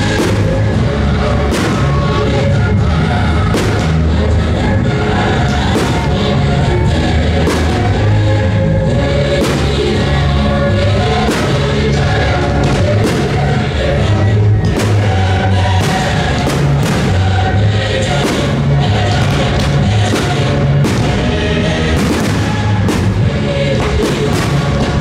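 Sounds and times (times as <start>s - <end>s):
soundtrack music with singing: 0.0s - 25.0s
strong percussive hits: 3.5s - 4.4s, 14.6s - 25.0s.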